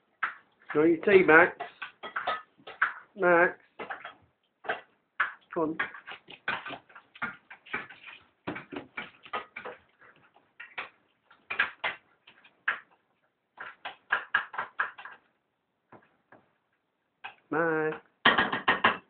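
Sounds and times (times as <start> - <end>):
puppy claws clicking on hard floor: 1.5 - 15.3.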